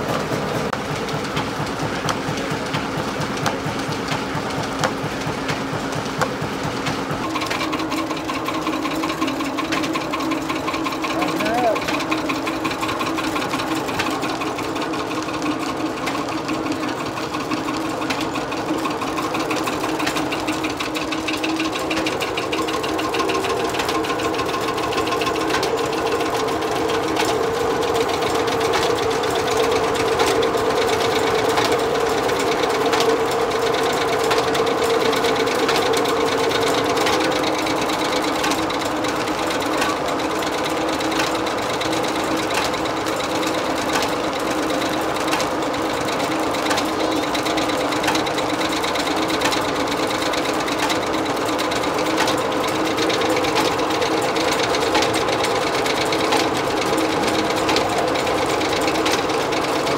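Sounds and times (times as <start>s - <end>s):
drive belts clattering: 0.0s - 59.9s
strong machine tone: 7.2s - 8.9s.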